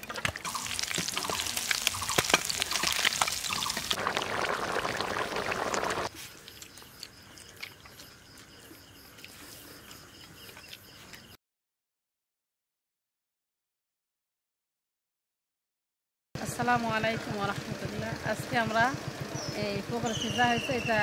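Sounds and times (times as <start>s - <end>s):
water splashing and pouring: 0.0s - 6.2s.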